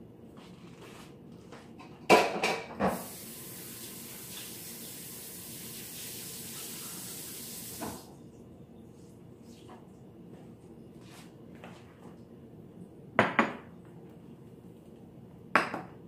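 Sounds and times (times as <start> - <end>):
tap water running into sink: 2.8 - 8.1.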